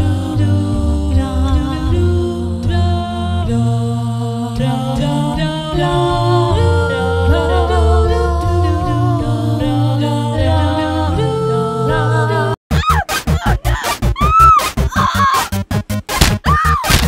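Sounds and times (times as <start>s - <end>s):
deep bass voice singing: 0.0s - 12.6s
voices singing in harmony: 0.0s - 12.6s.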